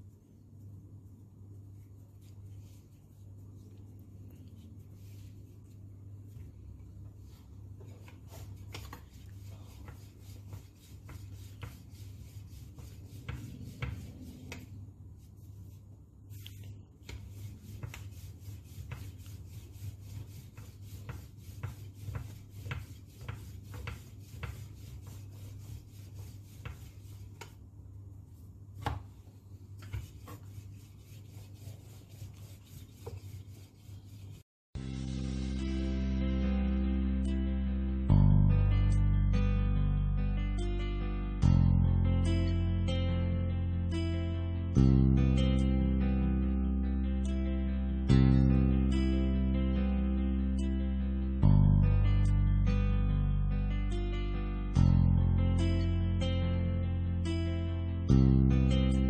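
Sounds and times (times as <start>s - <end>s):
steady low hum: 0.0s - 41.6s
rolling pin rolling dough: 7.2s - 34.4s.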